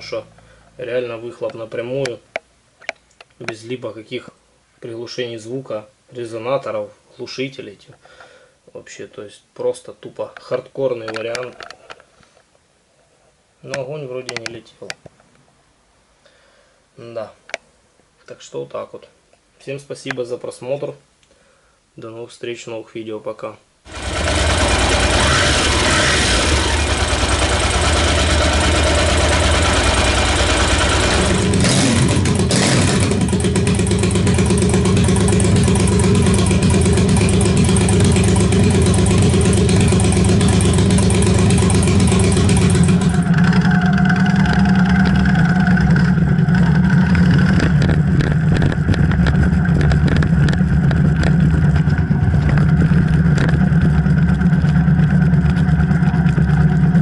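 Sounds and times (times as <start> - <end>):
loud unmuffled motorcycle engine: 23.9 - 57.0.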